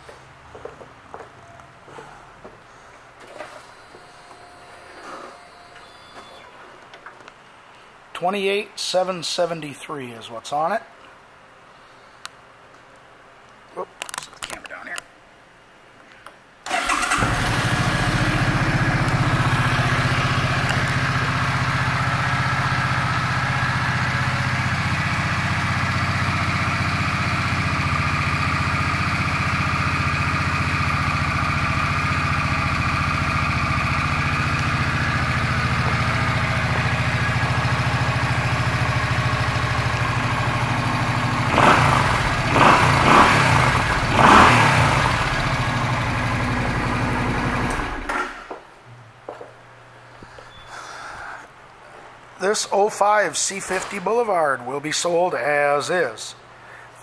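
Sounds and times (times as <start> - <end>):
motorcycle engine starting and idling: 16.6 - 48.6
motorcycle engine revving: 16.7 - 48.5.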